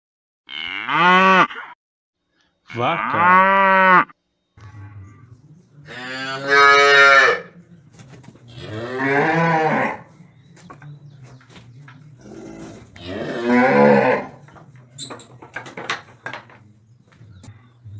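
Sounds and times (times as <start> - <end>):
cattle mooing: 0.5 - 1.7, 2.7 - 5.3, 5.9 - 7.5, 8.5 - 10.1, 12.3 - 14.4.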